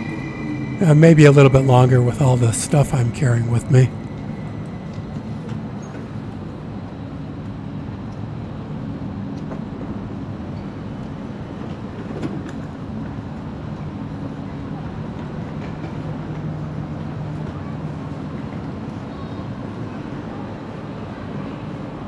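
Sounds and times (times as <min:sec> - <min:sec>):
electric train humming: 0:00.0 - 0:11.9.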